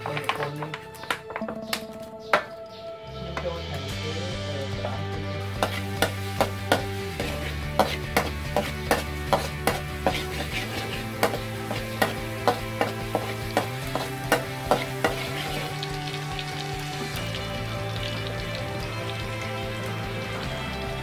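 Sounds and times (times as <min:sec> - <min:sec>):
soft background music: 0:00.0 - 0:21.0
garlic sizzling in oil: 0:05.4 - 0:21.0
metal spatula clacking on wok: 0:05.6 - 0:15.6.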